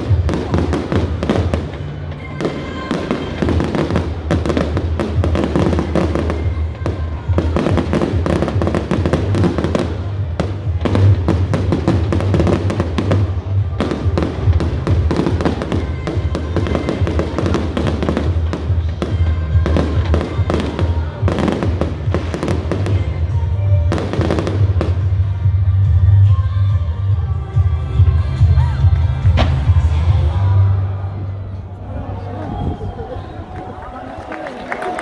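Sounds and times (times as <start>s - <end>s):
fireworks bangs and crackles: 0.0s - 25.6s
music playing: 0.0s - 35.0s.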